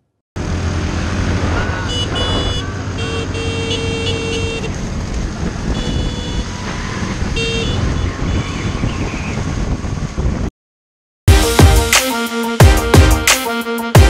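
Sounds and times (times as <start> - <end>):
scooter engine and road noise: 0.4 - 10.5
short horn beeps: 1.9 - 4.7, 5.8 - 6.5
wind rumble on microphone: 4.7 - 10.5.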